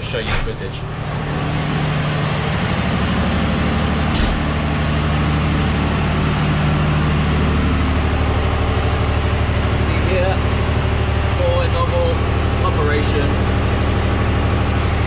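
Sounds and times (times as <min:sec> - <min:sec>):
generators humming: 0:00.0 - 0:15.0
brief knock: 0:04.1 - 0:04.5.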